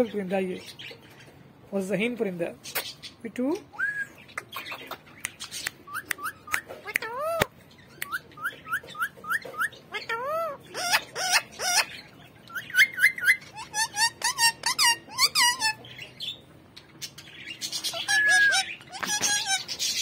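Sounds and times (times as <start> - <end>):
parakeet chirping: 4.2 - 20.0.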